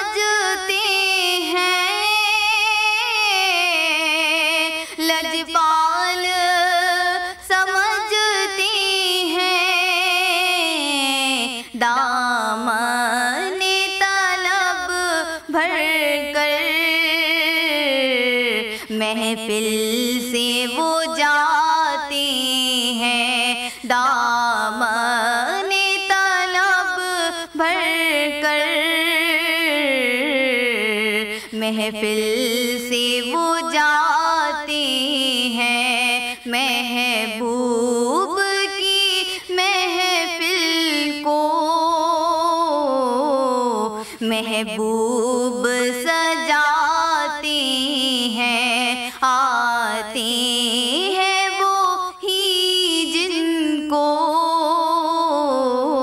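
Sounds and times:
woman singing devotional song: 0.0 - 56.0.

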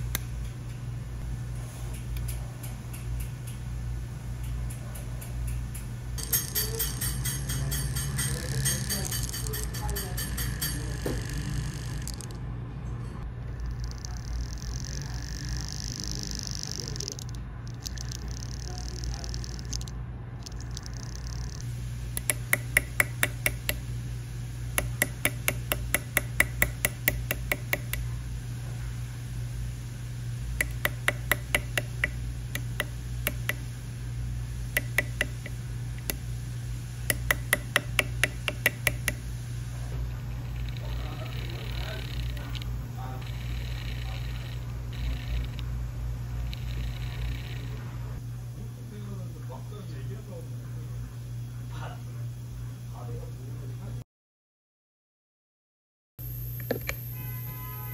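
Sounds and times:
steady low hum: 0.0 - 54.0, 56.2 - 57.9
steel tool clicking on metal: 4.4 - 12.2, 22.2 - 23.8, 24.8 - 28.0, 30.6 - 33.6, 34.8 - 36.2, 37.1 - 39.2.

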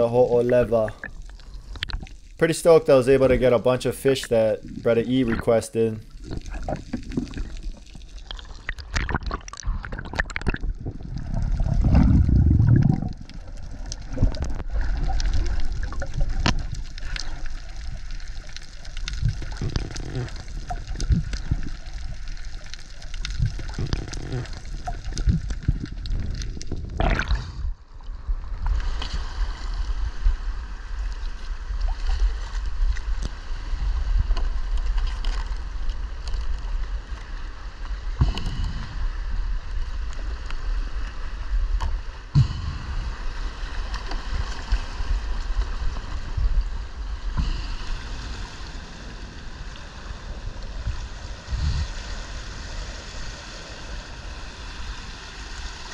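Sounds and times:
sea water washing over rocks: 0.0 - 55.9
underwater sloshing and gurgling: 0.0 - 55.9.

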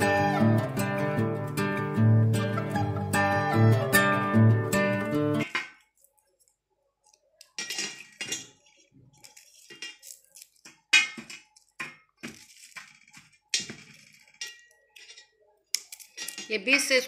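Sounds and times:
knife clinking on metal plate: 7.4 - 8.7, 9.4 - 17.0.

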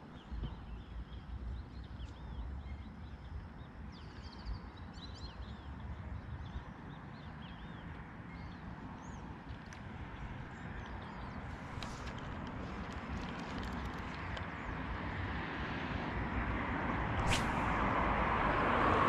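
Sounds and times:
small birds chirping: 0.0 - 15.1.

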